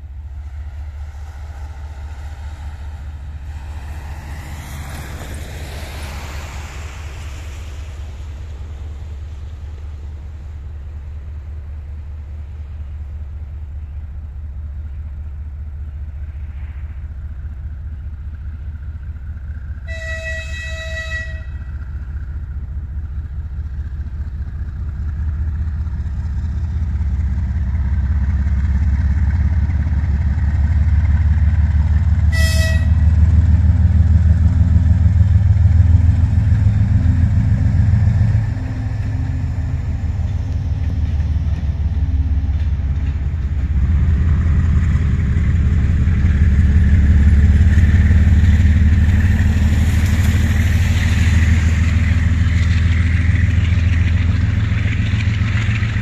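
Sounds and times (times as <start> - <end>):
locomotive engine rumble: 0.0 - 56.0
train horn blasts: 19.8 - 21.9, 32.2 - 33.2.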